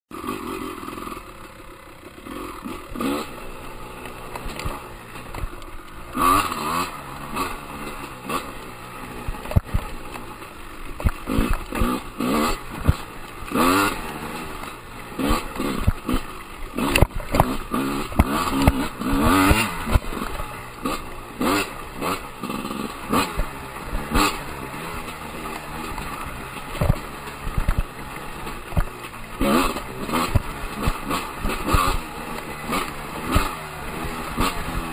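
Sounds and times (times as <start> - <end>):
dirt bike engine revving: 0.1 - 34.9
bike knocks and rattles: 9.2 - 34.9.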